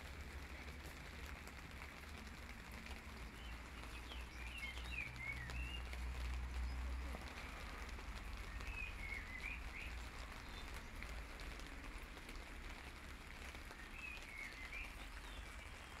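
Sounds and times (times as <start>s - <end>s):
rain on wet paving: 0.0s - 16.0s
water drips: 0.0s - 16.0s.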